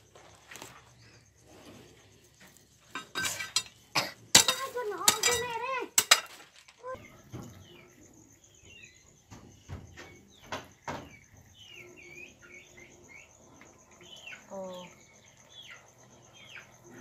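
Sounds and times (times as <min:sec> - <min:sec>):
high-pitched insect trill: 0:00.0 - 0:17.0
small birds chirping: 0:00.0 - 0:17.0.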